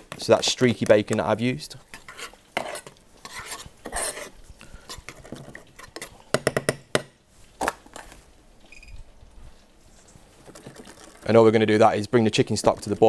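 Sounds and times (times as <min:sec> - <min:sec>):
metal spoon scraping saucepan: 0:01.9 - 0:06.2.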